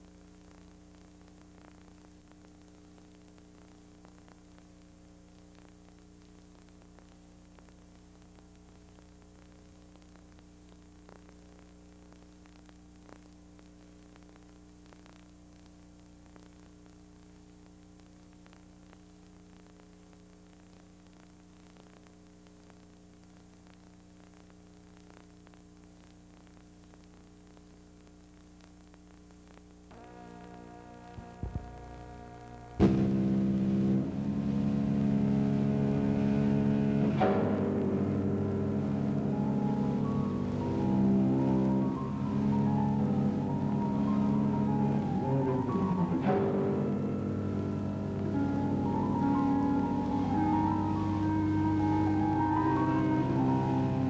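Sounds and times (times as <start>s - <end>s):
faint electrical hum with hiss: 0.0s - 54.0s
faint clicks: 0.2s - 30.2s
music: 29.9s - 54.0s.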